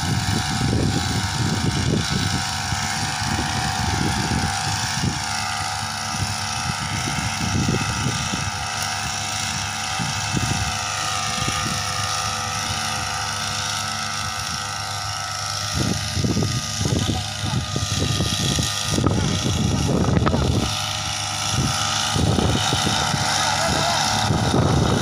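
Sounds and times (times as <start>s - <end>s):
sprayer engine running at high revs: 0.0s - 25.0s
low rumbles: 15.7s - 25.0s.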